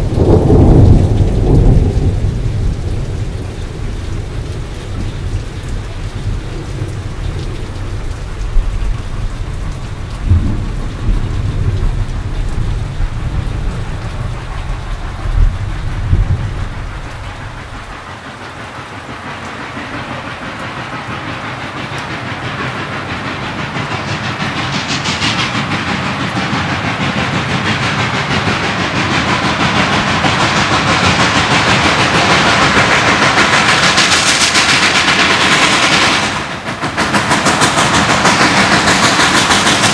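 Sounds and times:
sharp thunder cracks: 0.0s - 4.4s, 10.2s - 17.6s
thunder rumbling: 0.0s - 18.2s, 21.3s - 39.9s
steady hiss: 0.0s - 39.9s
steady rain: 0.0s - 39.9s.

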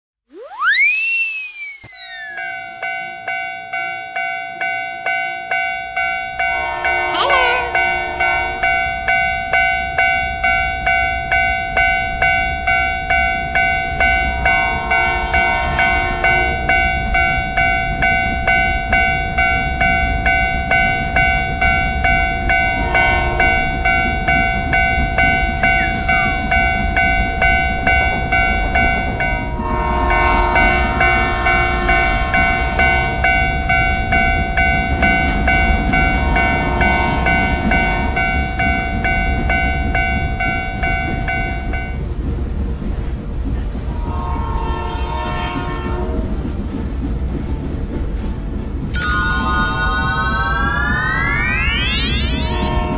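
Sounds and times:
level-crossing bell ringing: 1.6s - 29.6s, 30.2s - 42.0s, 49.0s - 52.9s
rumble of passing trains: 2.0s - 52.9s
train horn blasts: 6.3s - 9.8s, 14.2s - 17.4s, 22.6s - 24.0s, 29.4s - 33.5s, 36.0s - 38.9s, 43.8s - 46.5s, 52.7s - 52.9s.

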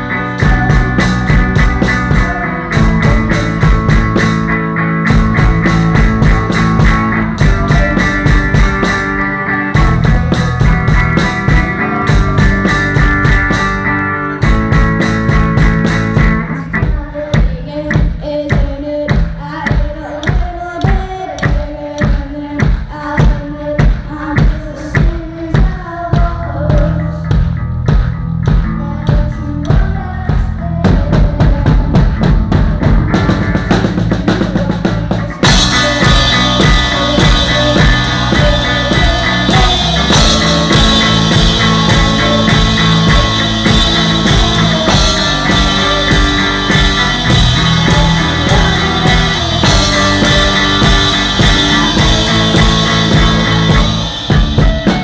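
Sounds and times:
drum hits: 0.0s - 9.2s, 9.8s - 16.5s, 35.4s - 55.0s
rock band playing: 0.0s - 55.0s.

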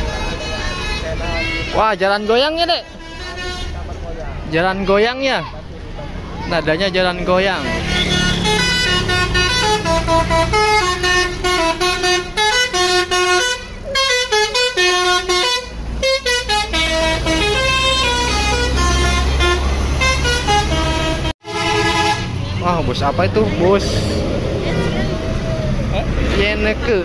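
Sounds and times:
musical bus horn melody: 0.0s - 4.0s, 7.4s - 22.4s
diesel engine rumbling: 0.0s - 27.0s.

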